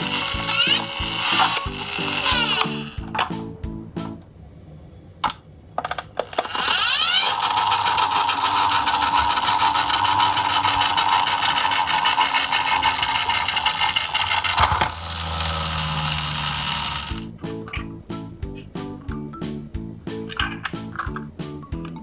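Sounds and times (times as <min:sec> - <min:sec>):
toy truck motor whirring: 0:00.0 - 0:03.0, 0:06.2 - 0:17.3.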